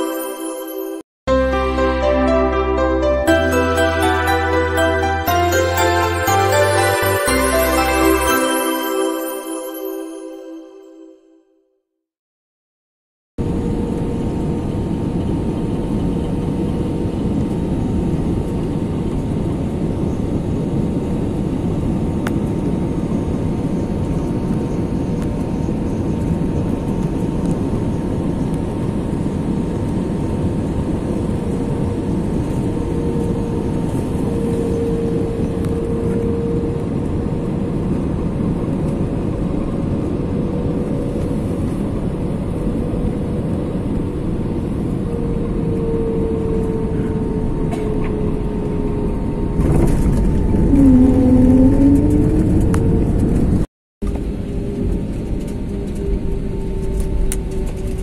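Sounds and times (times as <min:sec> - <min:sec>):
steady engine whine: 0:13.4 - 0:58.0.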